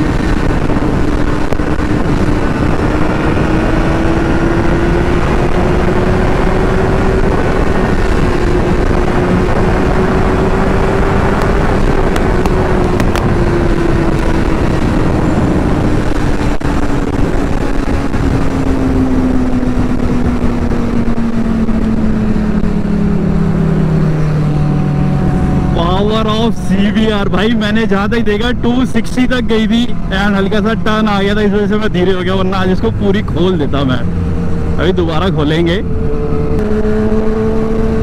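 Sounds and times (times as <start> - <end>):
motorcycle engine at full throttle: 0.0 - 38.0
wind rush on microphone: 0.0 - 38.0.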